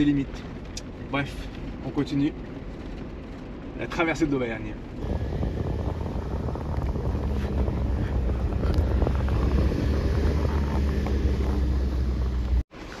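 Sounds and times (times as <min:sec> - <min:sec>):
wind buffeting microphone: 0:04.9 - 0:12.6
vehicle running on dirt track: 0:04.9 - 0:13.0.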